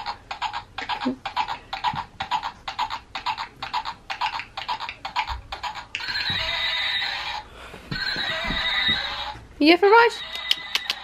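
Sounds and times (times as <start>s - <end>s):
recorded hoofbeats clip-clop: 0.0s - 6.6s, 8.0s - 9.2s.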